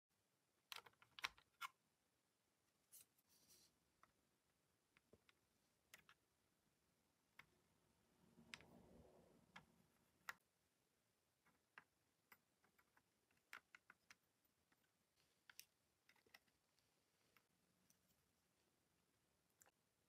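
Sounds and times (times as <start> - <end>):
soft rustle: 2.8 - 3.8.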